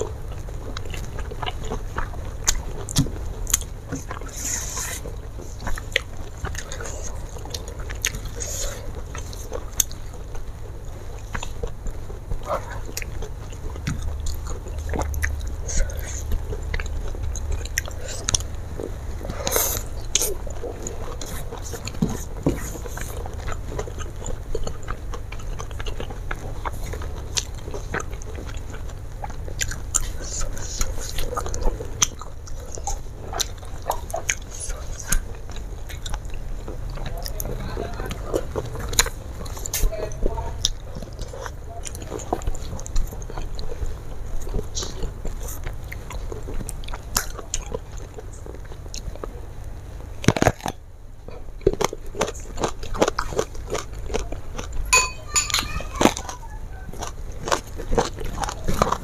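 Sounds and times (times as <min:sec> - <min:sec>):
chewing and mouth sounds: 0:00.0 - 0:59.0
steady low hum: 0:00.0 - 0:59.0
small clicks and crunches: 0:50.2 - 0:50.8.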